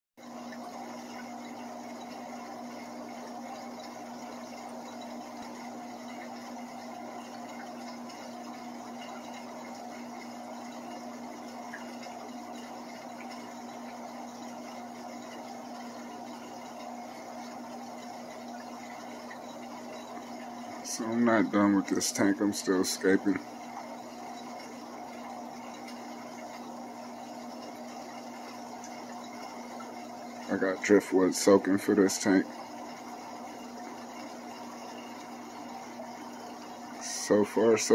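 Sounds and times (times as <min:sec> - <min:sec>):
pump motor hum: 0:00.2 - 0:37.9.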